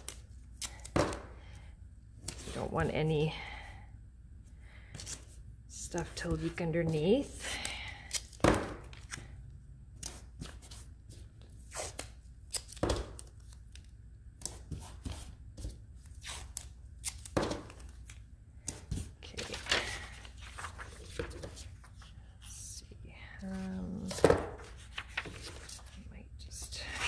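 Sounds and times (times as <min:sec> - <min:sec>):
paper rustling: 0:17.3 - 0:22.2, 0:23.5 - 0:26.1.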